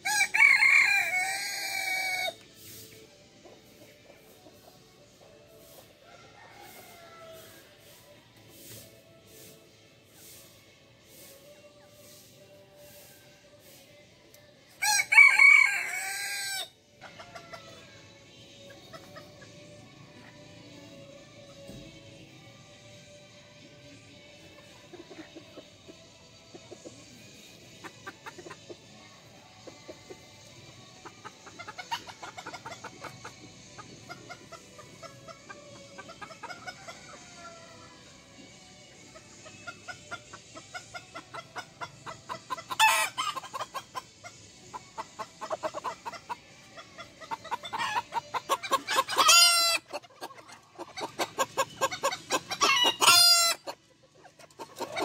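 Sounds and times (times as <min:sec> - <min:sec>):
rooster crowing: 0:00.0 - 0:02.4, 0:06.0 - 0:07.7, 0:14.8 - 0:16.7
chickens clucking: 0:00.0 - 0:55.0.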